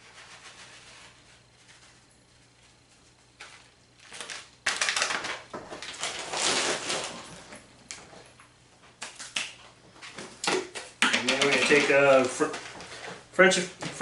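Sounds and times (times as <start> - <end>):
packaging rustling and crinkling: 3.3 - 8.2, 11.2 - 13.2.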